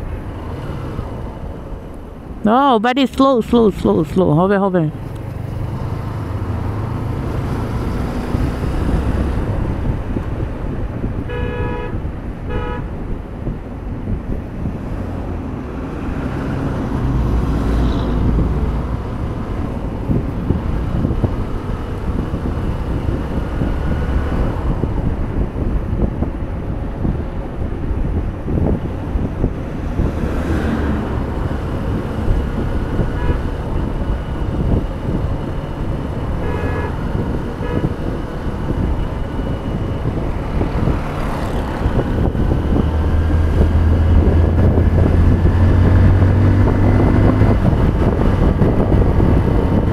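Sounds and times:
road rumble: 0:00.0 - 0:49.9
vehicle horn blasts: 0:11.3 - 0:12.9, 0:33.1 - 0:33.5, 0:36.4 - 0:38.0.

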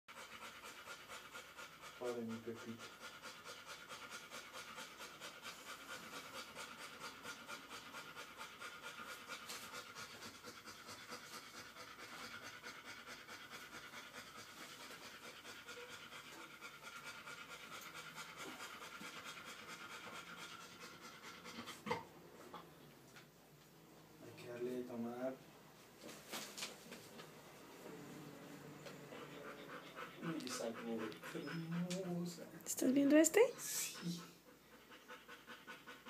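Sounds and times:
dog panting: 0:00.1 - 0:25.4, 0:27.2 - 0:36.0.

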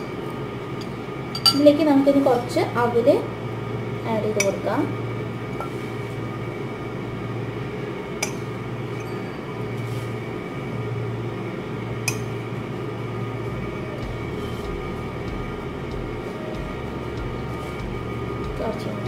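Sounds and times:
low hum: 0:00.0 - 0:19.0
spoon clinking against glass mug: 0:01.4 - 0:01.6.

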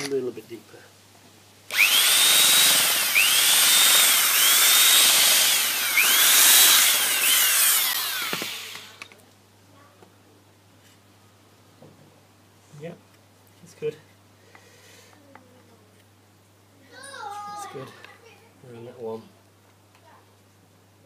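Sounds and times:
electric drill boring into wood: 0:01.7 - 0:09.1.

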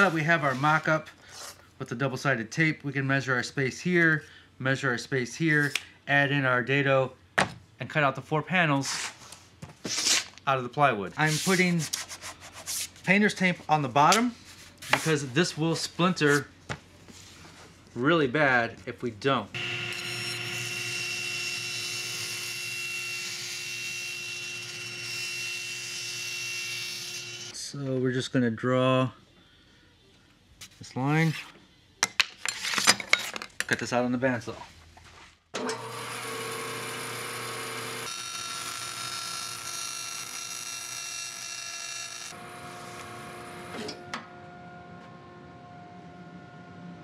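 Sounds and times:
bandsaw humming: 0:19.6 - 0:27.5, 0:35.7 - 0:44.1
table saw cutting plywood: 0:19.6 - 0:27.5, 0:35.6 - 0:44.1.

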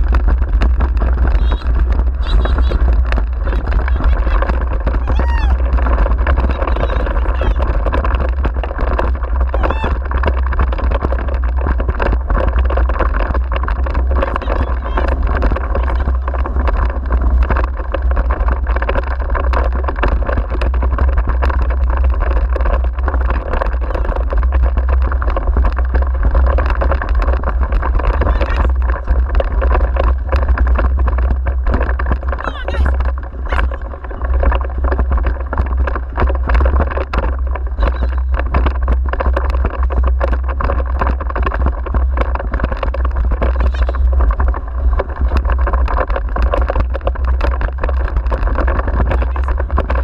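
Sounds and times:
small clicks and knocks: 0:00.0 - 0:50.0
wheeled rig rattling over rough track: 0:00.0 - 0:50.0
wind buffeting microphone: 0:00.0 - 0:50.0.

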